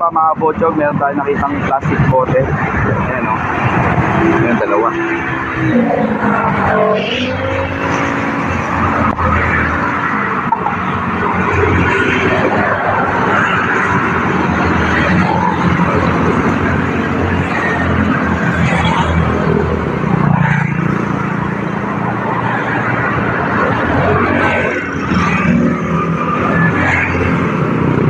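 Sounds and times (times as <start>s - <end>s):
road traffic: 0.0s - 28.0s.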